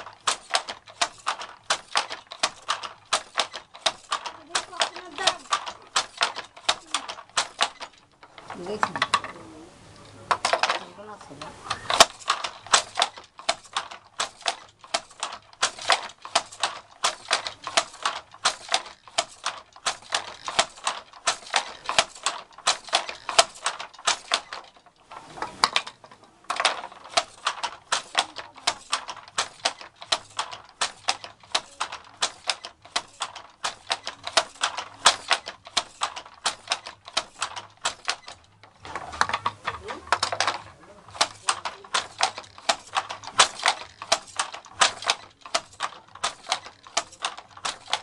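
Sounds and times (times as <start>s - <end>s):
wooden handloom clacking: 0.0s - 48.0s.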